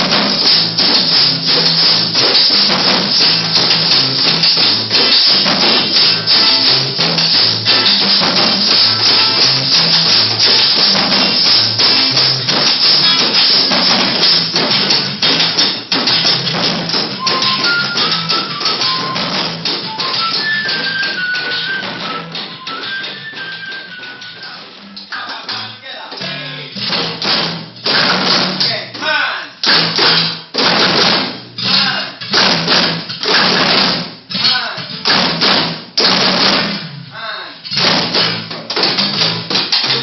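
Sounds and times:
acoustic guitar: 0.0s - 40.0s
hand drums and drum kit: 0.0s - 40.0s
high melody: 2.1s - 14.6s, 16.6s - 25.2s.

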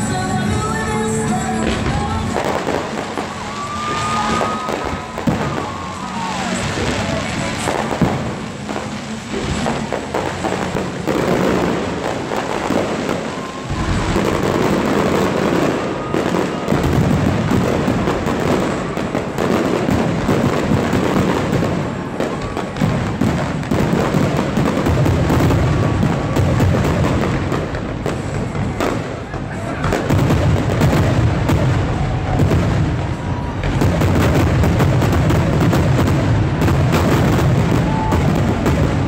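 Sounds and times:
fireworks booming and crackling: 0.0s - 39.0s.

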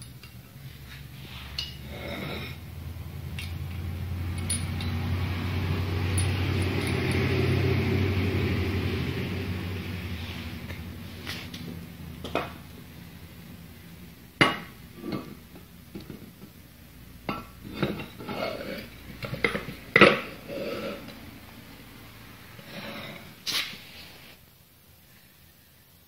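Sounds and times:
metal vise parts clanking and scraping: 0.0s - 2.6s, 3.3s - 5.1s, 6.1s - 7.5s, 17.3s - 21.1s.

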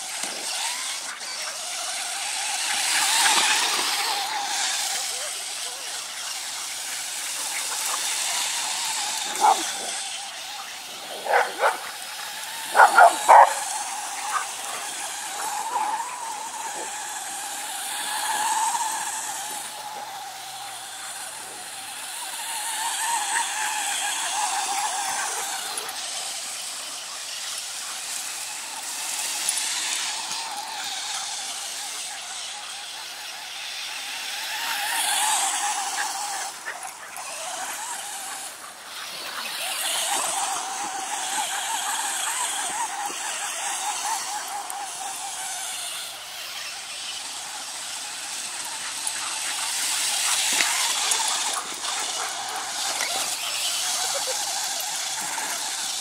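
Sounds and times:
remote-control car motor whining: 0.0s - 56.0s
dog barking: 9.3s - 9.9s, 11.2s - 11.9s, 12.7s - 13.7s.

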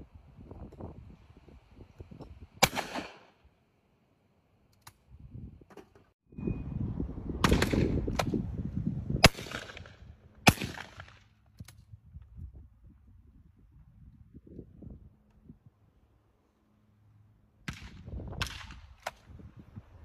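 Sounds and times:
wind on microphone: 0.0s - 2.7s, 5.0s - 5.7s, 6.3s - 10.8s, 11.5s - 16.0s, 17.7s - 20.0s
shotgun shots: 2.6s - 3.3s, 7.4s - 8.3s, 9.2s - 11.2s.

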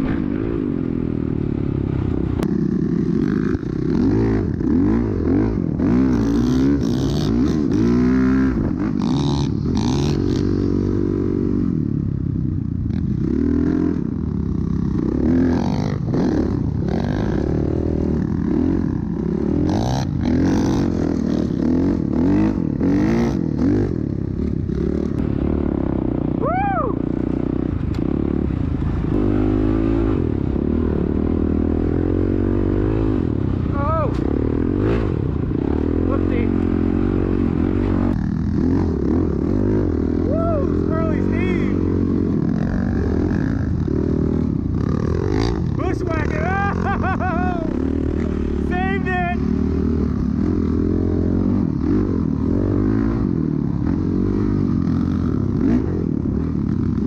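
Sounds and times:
dirt bike engines revving: 0.0s - 57.0s.

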